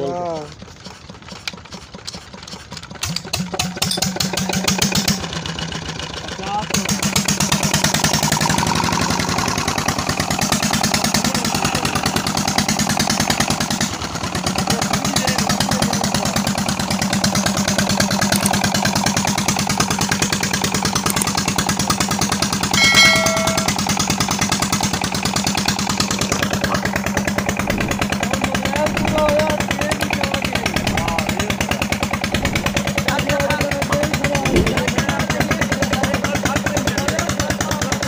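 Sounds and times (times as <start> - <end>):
diesel engine running: 4.2 - 38.0
short chime-like tone: 22.8 - 23.9.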